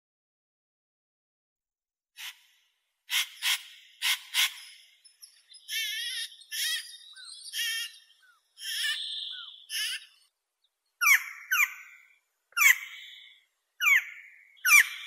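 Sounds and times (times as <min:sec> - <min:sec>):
bird harsh calls: 0:02.2 - 0:10.3, 0:10.9 - 0:15.0
bird wavering calls: 0:03.1 - 0:10.3, 0:11.0 - 0:15.0.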